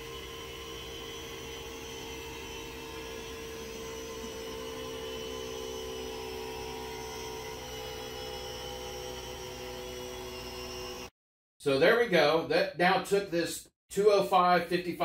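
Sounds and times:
tire inflator compressor running: 0:00.0 - 0:11.1.

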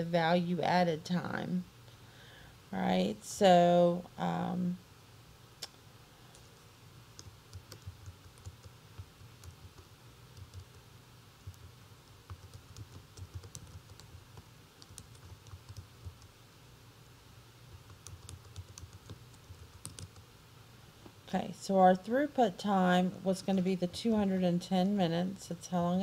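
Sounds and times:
low steady hum: 0:00.0 - 0:26.0
keyboard typing: 0:07.2 - 0:10.8, 0:11.4 - 0:16.3, 0:17.7 - 0:20.2.

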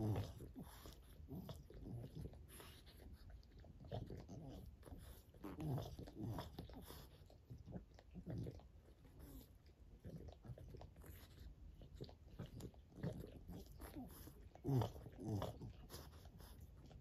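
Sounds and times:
dogs grunting: 0:00.0 - 0:02.8, 0:03.8 - 0:09.4, 0:12.3 - 0:16.6
dog licking: 0:00.0 - 0:17.0.

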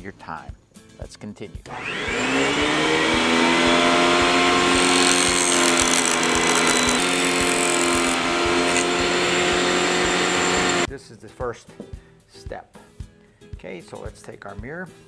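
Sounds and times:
table saw motor whining: 0:01.7 - 0:10.9.

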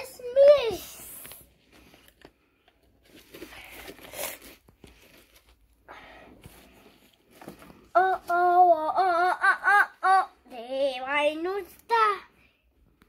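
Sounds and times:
paper packaging rustling: 0:01.2 - 0:05.8, 0:06.4 - 0:08.6.

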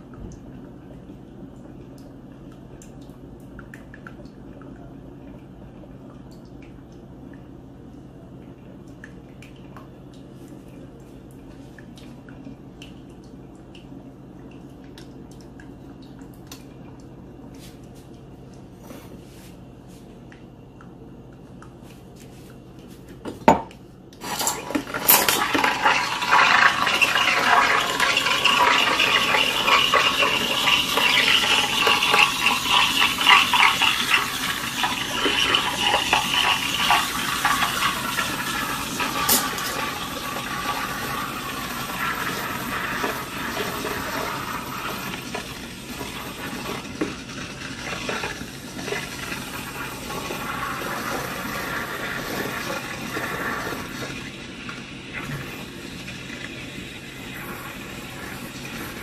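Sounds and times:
espresso machine sputtering and gurgling: 0:24.2 - 0:59.0.

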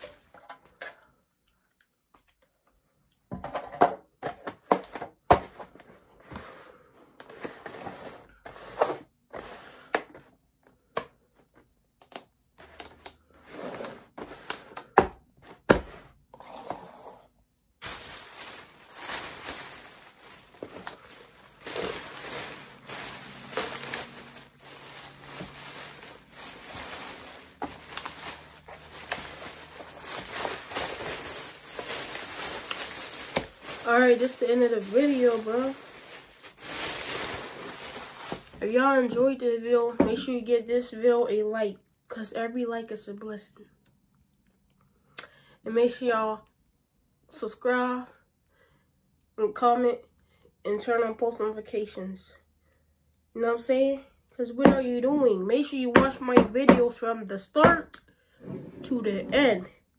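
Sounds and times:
wrapping crinkling: 0:17.8 - 0:39.4.

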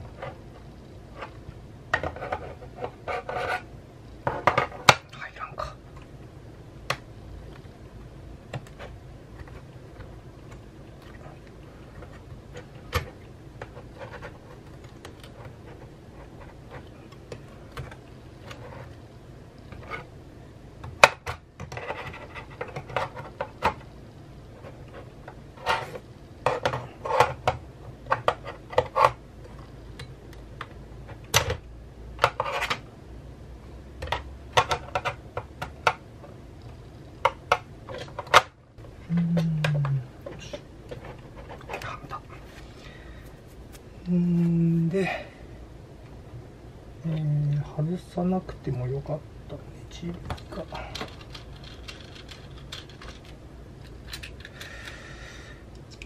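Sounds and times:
metal and plastic parts clicking: 0:50.3 - 0:55.0.

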